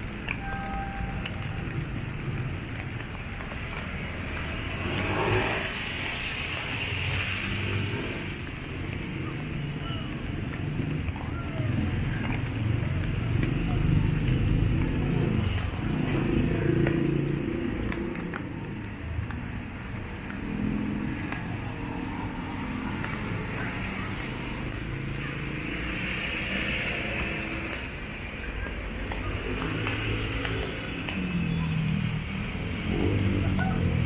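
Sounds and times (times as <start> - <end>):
car and motorcycle engines: 0.0 - 34.0
tyres hissing on road: 3.6 - 10.4, 20.1 - 34.0.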